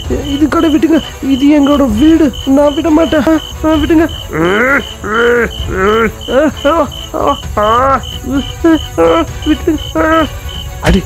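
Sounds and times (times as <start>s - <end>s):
crickets chirping: 0.0s - 11.0s
people shouting: 3.1s - 11.0s.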